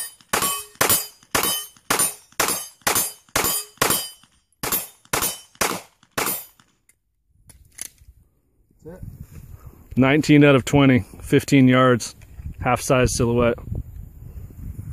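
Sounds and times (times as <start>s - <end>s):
pistol shots: 0.0s - 6.7s.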